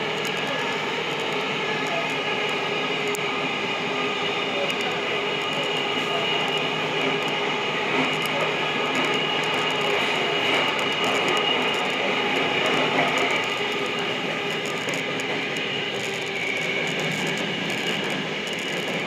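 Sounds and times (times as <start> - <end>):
steady train tones: 0.0 - 19.0
subway train rumbling in tunnel: 0.0 - 19.0.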